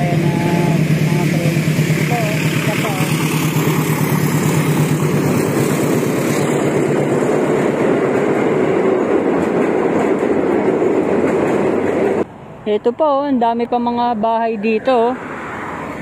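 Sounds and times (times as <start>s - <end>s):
train wheels on rails: 0.0s - 12.3s.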